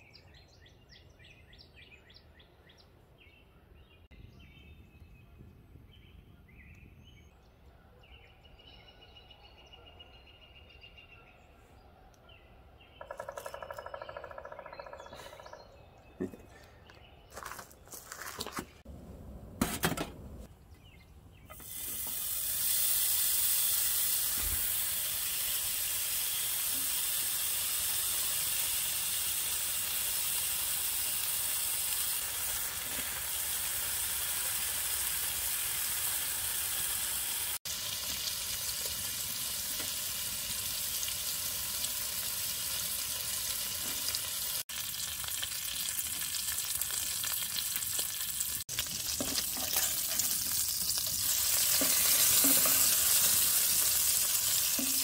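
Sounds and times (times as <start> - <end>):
bacon sizzling in frying pan: 21.5 - 55.0.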